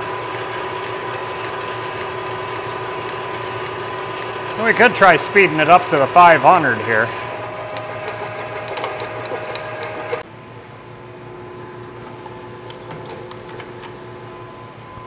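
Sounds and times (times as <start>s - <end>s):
metal lathe running: 0.0s - 10.2s.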